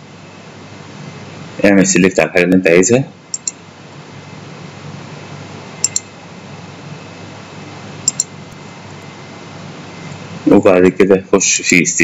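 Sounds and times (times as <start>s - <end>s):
faint hum and hiss: 0.0s - 12.0s
computer mouse button clicking: 3.3s - 3.6s, 5.8s - 6.1s, 8.0s - 8.3s.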